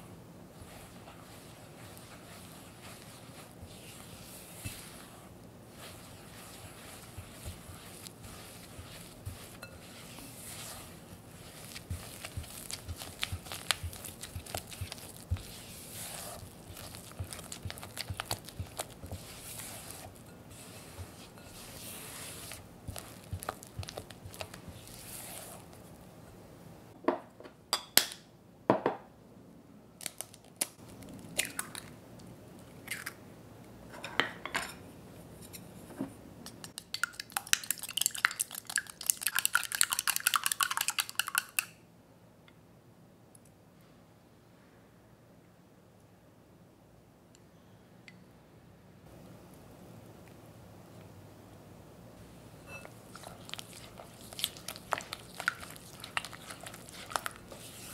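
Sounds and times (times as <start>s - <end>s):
spatula scraping in glass bowl: 0.6s - 25.6s, 52.6s - 57.9s
chopsticks whisking egg: 0.6s - 25.8s, 36.6s - 41.7s, 52.7s - 57.9s.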